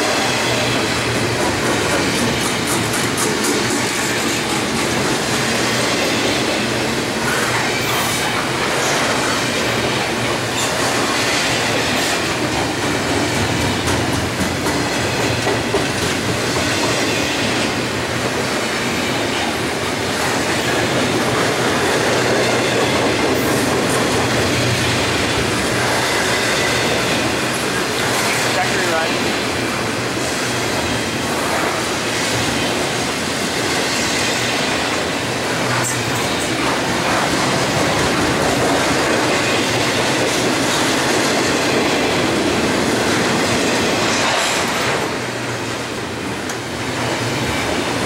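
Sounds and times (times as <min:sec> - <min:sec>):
freight train wheels rumbling on rails: 0:00.0 - 0:48.0.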